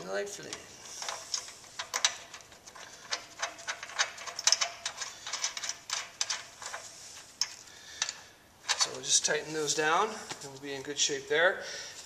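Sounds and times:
nut tightening on bolt clicks: 0:00.4 - 0:06.8.

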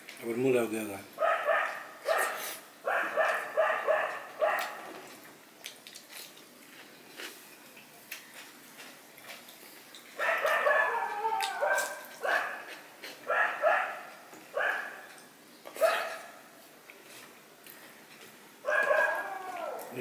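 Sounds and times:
dogs barking and yelping: 0:01.2 - 0:05.2, 0:10.0 - 0:16.5, 0:18.6 - 0:20.0.

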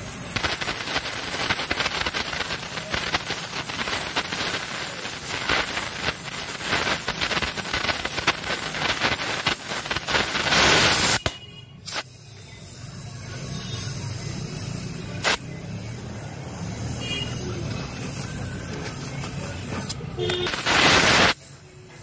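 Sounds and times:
crackles and pops of melting metal: 0:00.0 - 0:12.1, 0:15.2 - 0:15.5, 0:17.7 - 0:22.0
welding torch hissing: 0:00.0 - 0:22.0.

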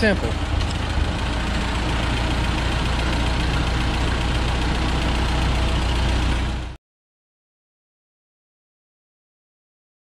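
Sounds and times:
tractor engine idling: 0:00.0 - 0:06.8.

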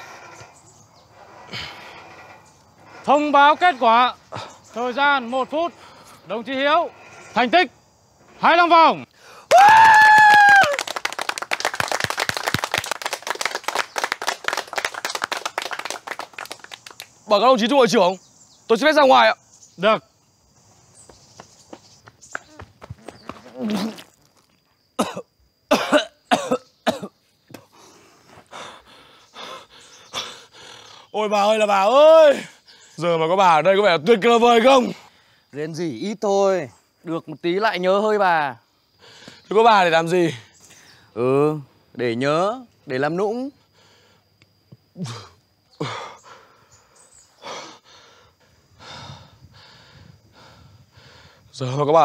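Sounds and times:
rough breathing: 0:00.0 - 0:07.6, 0:27.6 - 0:31.2, 0:45.2 - 0:51.5
man coughing and retching: 0:25.0 - 0:27.2
man sighing and groaning: 0:45.0 - 0:46.3.

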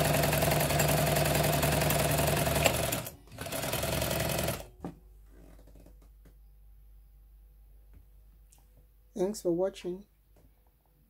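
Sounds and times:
sewing machine stitching: 0:00.0 - 0:04.7.

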